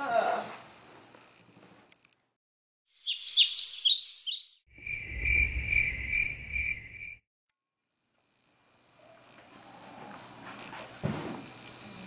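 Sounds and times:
birdsong chirps: 2.9 - 7.2
crickets chirring: 4.7 - 7.2.

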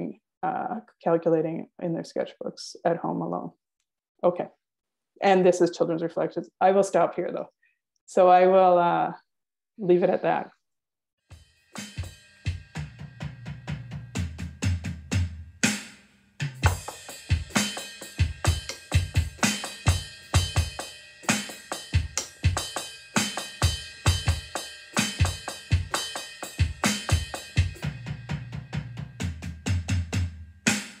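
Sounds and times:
drum kit playing: 11.3 - 31.0.

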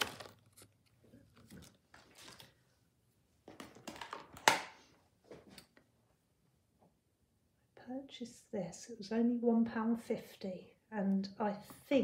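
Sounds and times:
plastic rustling and crinkling: 0.0 - 2.7.

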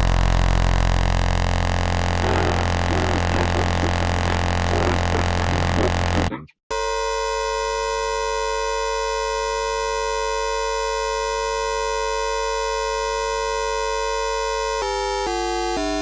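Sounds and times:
buzzy synthesized electronic tone: 2.1 - 7.2.

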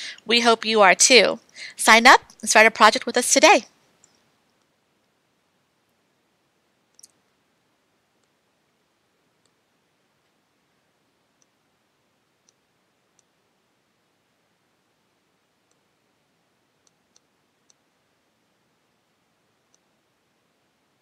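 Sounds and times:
computer mouse clicks: 4.0 - 4.8, 6.9 - 7.3, 8.2 - 8.4, 9.4 - 9.6, 11.3 - 11.6, 12.4 - 13.4, 15.6 - 15.9, 16.8 - 17.9, 19.6 - 19.9.

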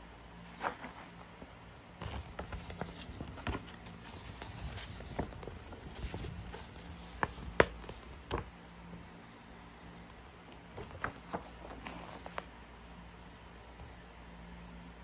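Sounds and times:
paper poster crackling: 0.5 - 8.5, 10.1 - 12.5.

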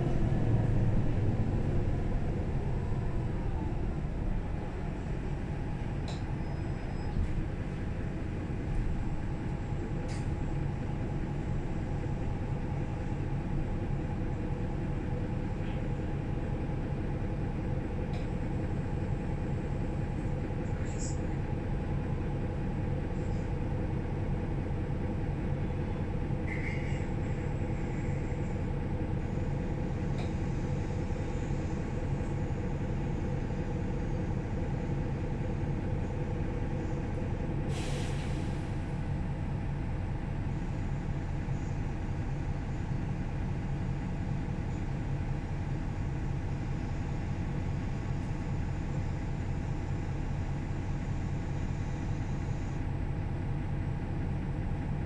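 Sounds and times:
bus diesel engine idling: 0.0 - 55.0
compressed air hiss: 37.7 - 38.6.

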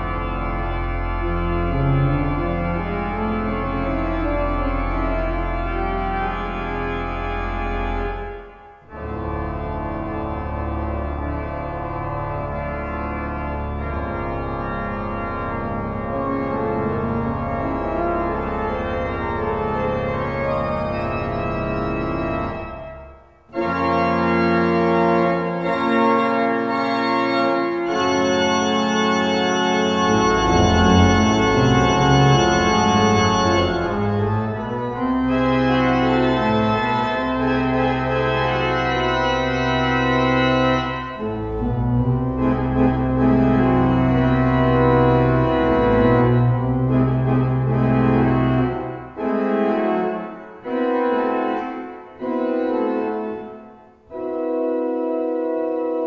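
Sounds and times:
pipe organ playing chords: 0.0 - 56.0.

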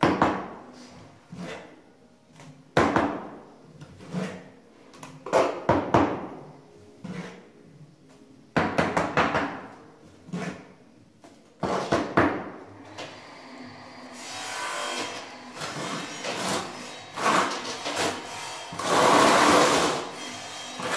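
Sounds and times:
notched trowel scraping: 0.8 - 1.8, 3.8 - 4.6, 7.0 - 7.5, 10.1 - 10.8, 12.9 - 20.9.

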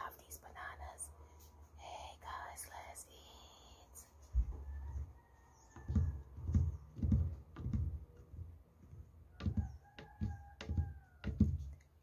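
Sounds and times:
microphone handling thumps: 4.3 - 11.8.

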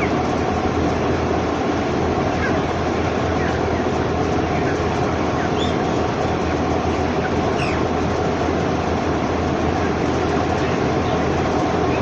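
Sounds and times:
chickens cheeping: 0.0 - 0.3, 2.0 - 6.2, 6.8 - 8.0
loud mechanical drone: 0.0 - 12.0.

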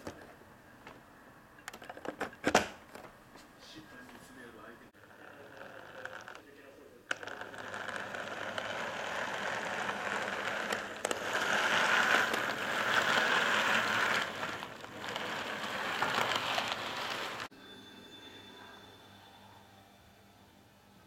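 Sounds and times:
model train wheels rattling on rails: 5.0 - 6.4, 7.1 - 17.5.

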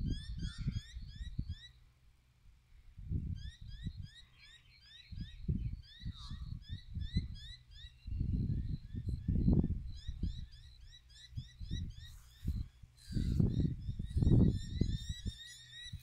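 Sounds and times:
bird chirping: 3.4 - 16.0.

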